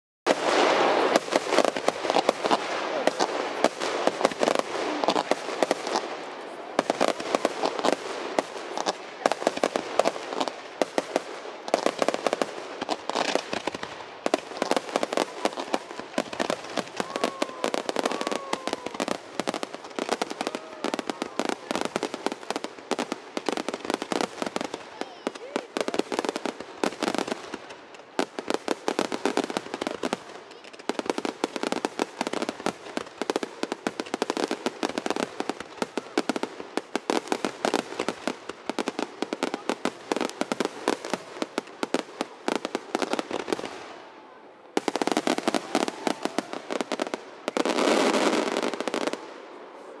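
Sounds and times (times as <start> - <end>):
fireworks bursts and crackles: 0.2 - 50.0.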